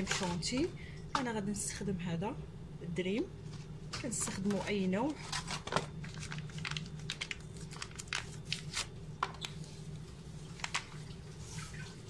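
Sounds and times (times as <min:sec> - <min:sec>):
packet crinkling and rustling: 0:00.0 - 0:00.7, 0:03.4 - 0:11.0
steady low hum: 0:00.0 - 0:12.0.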